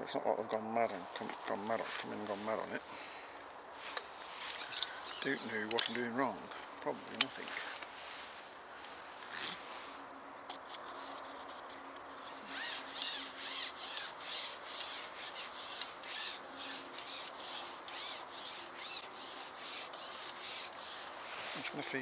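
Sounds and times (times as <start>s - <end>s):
rhythmic scraping strokes: 3.8s - 6.4s, 10.6s - 22.0s.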